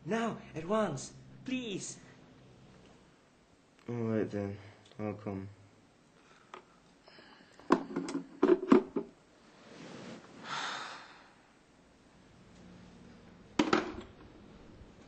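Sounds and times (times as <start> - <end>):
hard objects knocking: 7.6 - 9.1, 13.6 - 14.1
long breath out: 10.4 - 11.4.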